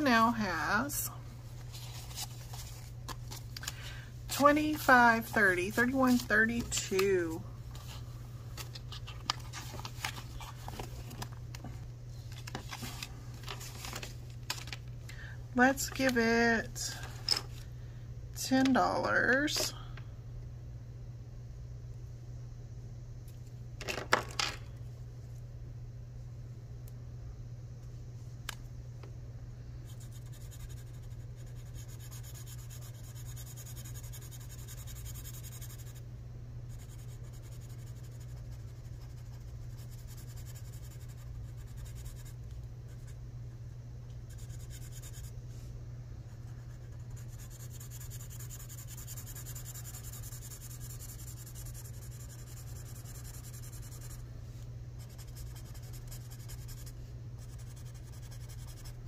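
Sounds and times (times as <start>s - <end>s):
steady low hum: 0.0s - 59.0s
marker scratching on paper: 4.4s - 6.9s, 29.9s - 36.0s, 46.5s - 54.2s, 55.0s - 59.0s.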